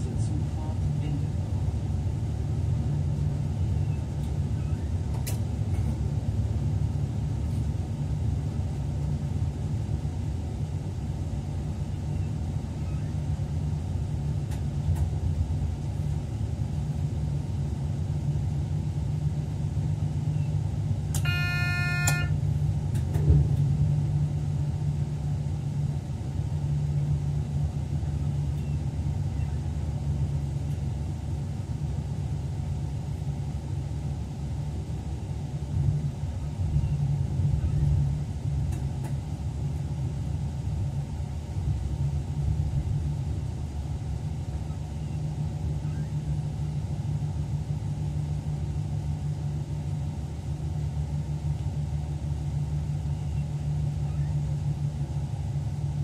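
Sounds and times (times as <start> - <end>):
train rumbling: 0.0 - 56.0
short pitched beep: 21.2 - 22.4.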